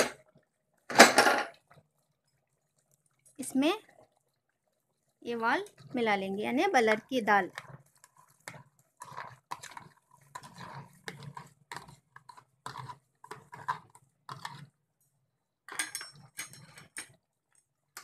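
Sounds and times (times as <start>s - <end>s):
spoon scraping plastic box: 7.5s - 14.8s.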